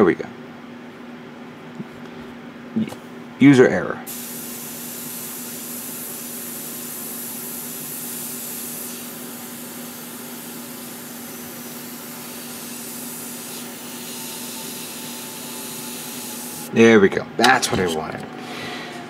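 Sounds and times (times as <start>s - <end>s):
airbrush hissing: 4.1s - 16.7s.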